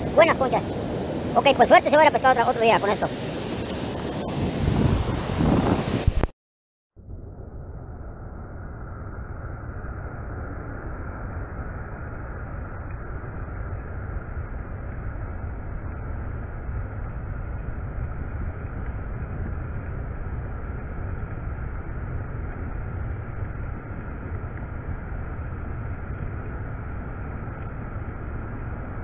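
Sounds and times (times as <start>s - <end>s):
ocean surf on sandy beach: 0.0s - 6.3s
wind rumbling on microphone: 0.0s - 6.3s, 7.0s - 29.0s.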